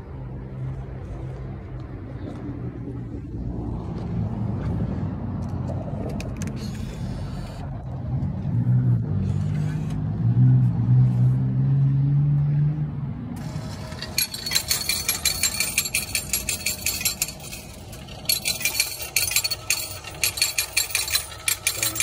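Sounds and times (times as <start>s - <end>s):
low vehicle engine hum: 0.0s - 22.0s
coins clinking and rattling: 13.4s - 22.0s.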